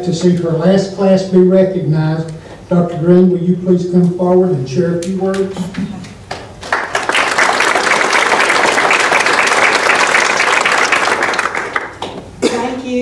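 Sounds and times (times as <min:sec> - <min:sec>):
audience applauding: 0:06.3 - 0:12.2.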